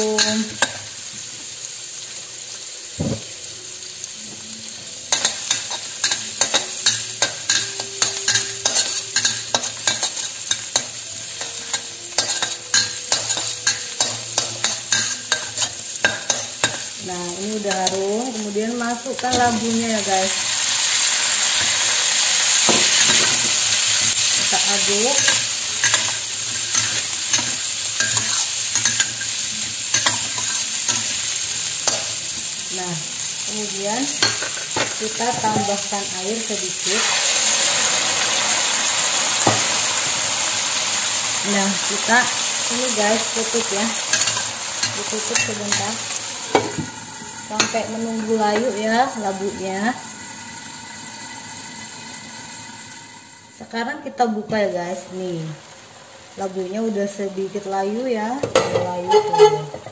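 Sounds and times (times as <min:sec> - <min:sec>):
garlic sizzling in oil: 0:00.0 - 0:59.9
metal spatula scraping a wok: 0:22.8 - 0:32.2, 0:58.9 - 0:59.9.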